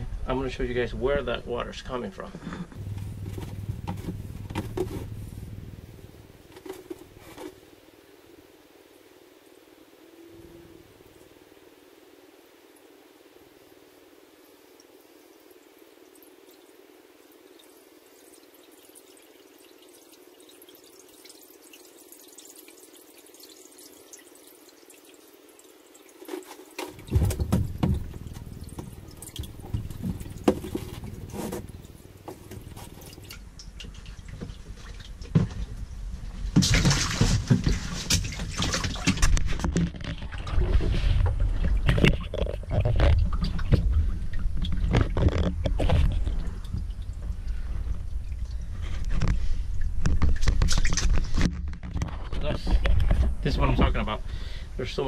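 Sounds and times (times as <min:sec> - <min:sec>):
faint hiss: 0:00.0 - 0:34.9, 0:52.4 - 0:55.0
low rumble: 0:02.7 - 0:07.2
water sloshing and splashing: 0:02.8 - 0:07.8, 0:17.5 - 0:54.1
knocks: 0:27.0 - 0:31.7.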